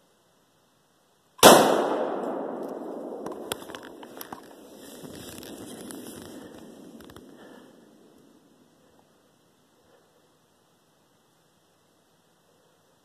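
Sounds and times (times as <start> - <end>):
rifle shot echoing: 1.4 - 4.9
rustling: 2.2 - 9.2.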